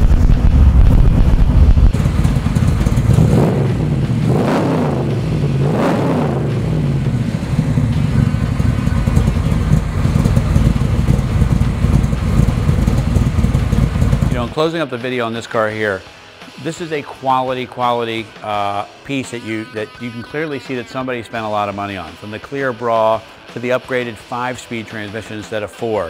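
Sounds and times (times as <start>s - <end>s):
car engine revving and idling: 0.0s - 14.6s.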